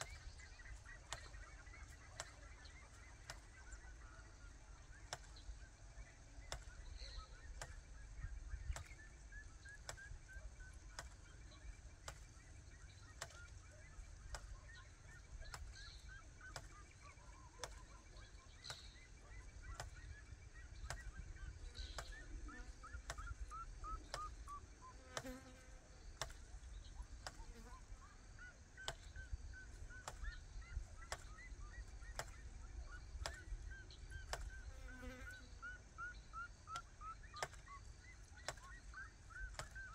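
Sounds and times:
bird chirps: 0.0s - 39.9s
sharp clicks: 33.2s - 33.6s.

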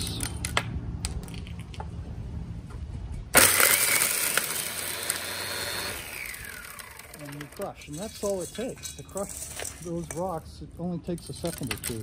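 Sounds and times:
angle grinder whining: 3.4s - 9.7s.

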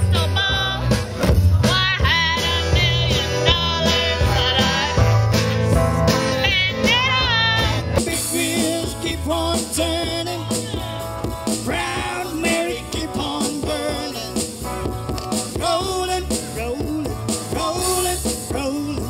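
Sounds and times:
strummed acoustic guitars: 0.0s - 19.0s
person singing: 6.2s - 14.5s, 15.5s - 19.0s.

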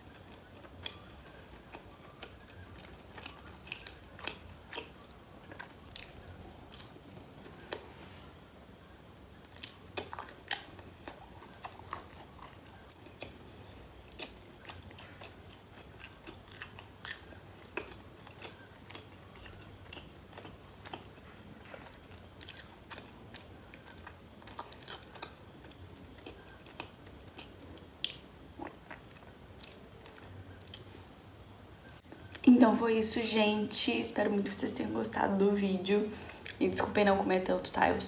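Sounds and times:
woman chewing food: 0.0s - 8.0s, 8.9s - 31.0s.

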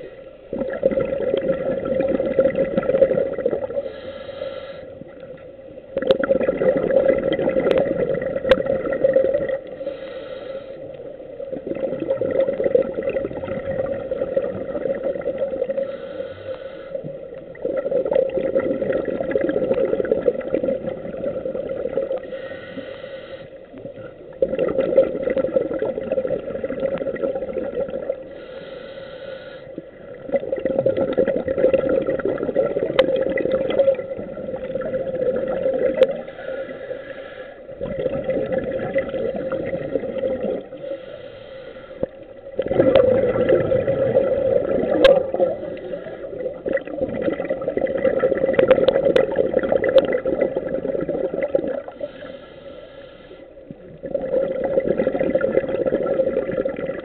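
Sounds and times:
bubbles gurgling: 0.0s - 4.0s, 4.9s - 9.9s, 10.9s - 16.0s, 17.0s - 22.3s, 23.7s - 28.4s, 29.7s - 36.7s, 37.7s - 41.0s, 42.0s - 52.2s, 53.6s - 57.0s
regulator inhalation hiss: 3.8s - 5.0s, 9.7s - 11.0s, 15.8s - 17.2s, 22.2s - 23.7s, 28.2s - 29.9s, 36.2s - 37.8s, 40.7s - 42.3s, 45.6s - 46.4s, 52.0s - 53.6s.

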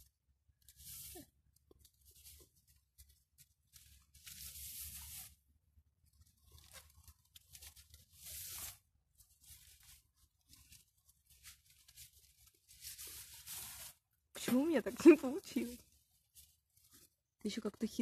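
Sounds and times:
leaves rustling and swishing: 6.5s - 17.1s.

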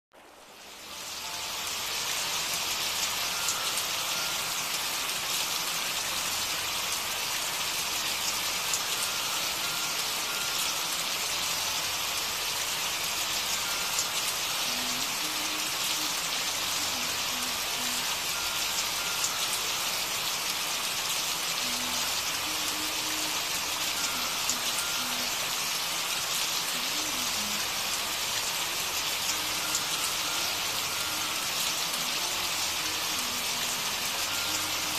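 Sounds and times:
steady rain: 0.1s - 34.9s.

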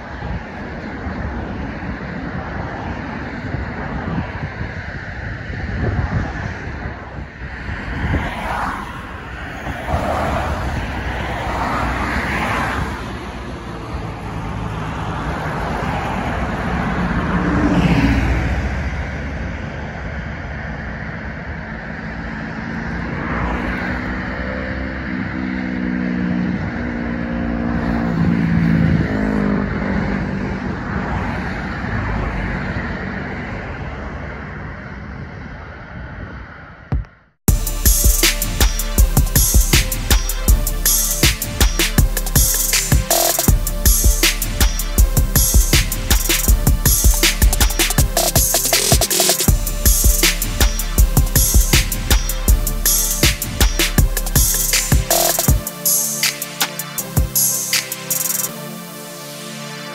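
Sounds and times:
wind on microphone: 0.0s - 25.4s, 26.0s - 37.6s.

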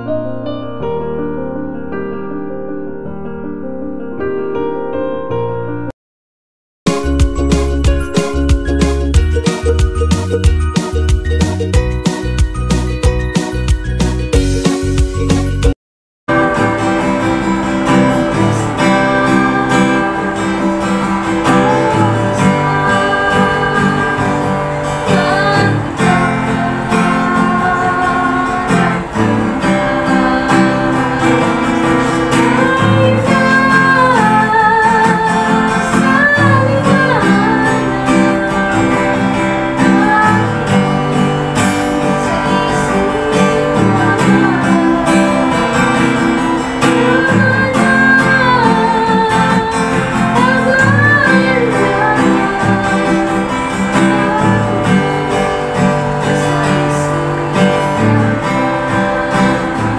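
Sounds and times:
acoustic guitar strumming: 6.9s - 59.9s
woman singing with vibrato: 16.3s - 41.3s, 41.9s - 59.9s.

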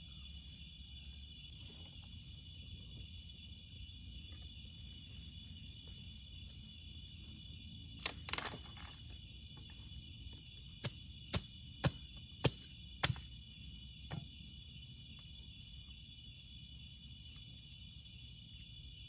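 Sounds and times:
crickets droning: 0.0s - 19.0s
campfire wood cracking: 7.9s - 13.5s.

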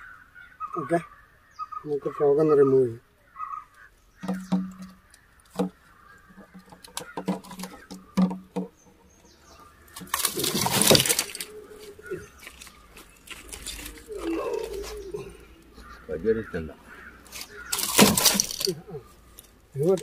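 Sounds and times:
fish flapping and net rustling: 9.8s - 15.1s, 17.3s - 18.8s.

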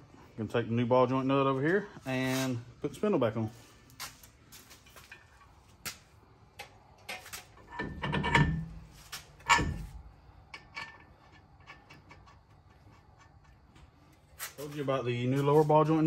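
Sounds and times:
metal-on-metal knocks: 6.6s - 8.8s, 9.4s - 10.0s
metal clatter: 7.1s - 13.5s
sharp metal clunk: 9.4s - 10.0s.

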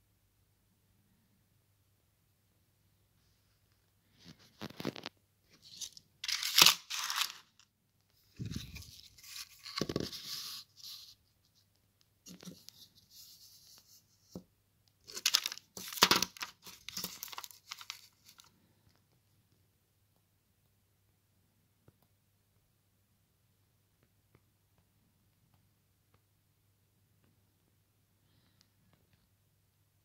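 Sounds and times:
plastic shrink-wrap crinkling: 4.5s - 7.7s, 15.0s - 18.5s.

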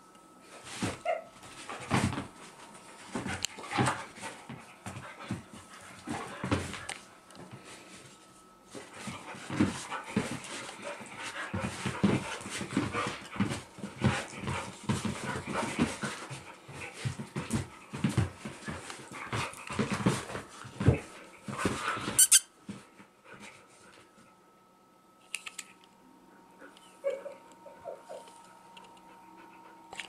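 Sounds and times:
dogs scuffling: 0.5s - 24.2s
dogs panting: 8.7s - 22.2s, 29.0s - 29.9s.

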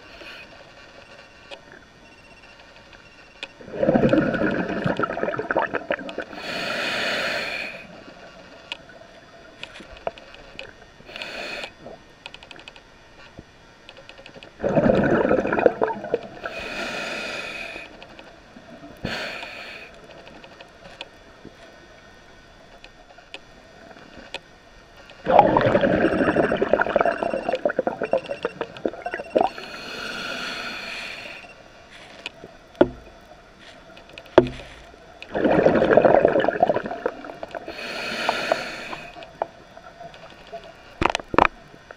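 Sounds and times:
exhaled bubbles underwater: 3.6s - 6.4s, 14.6s - 16.6s, 25.2s - 29.7s, 34.4s - 39.7s
regulator inhalation hiss: 6.2s - 8.0s, 11.0s - 11.9s, 16.4s - 18.0s, 19.0s - 20.2s, 29.4s - 33.0s, 34.5s - 39.5s.

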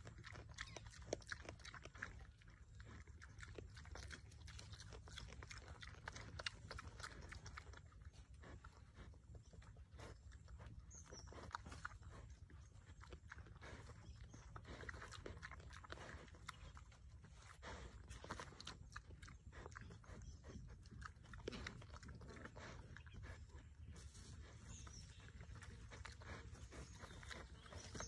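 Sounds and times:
boar chewing and crunching food: 0.0s - 28.0s.

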